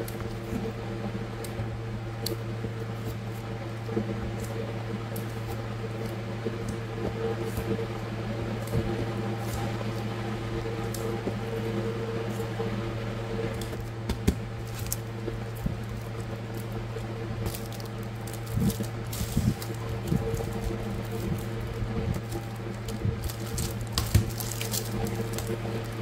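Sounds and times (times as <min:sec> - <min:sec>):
low mechanical hum: 0:00.0 - 0:26.0
plastic sleeves crinkling: 0:13.5 - 0:26.0.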